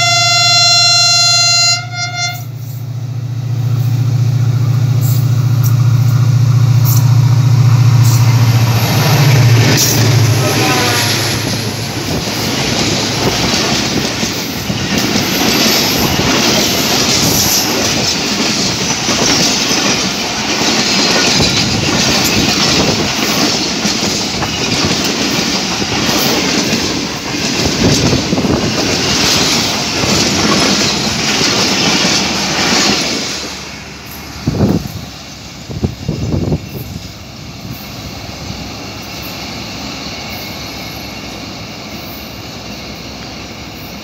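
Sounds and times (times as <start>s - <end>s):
train wheels rushing and rattling: 2.4s - 44.0s
wheels clicking over rail joints: 11.4s - 35.0s
faint high wheel squeal: 36.6s - 44.0s.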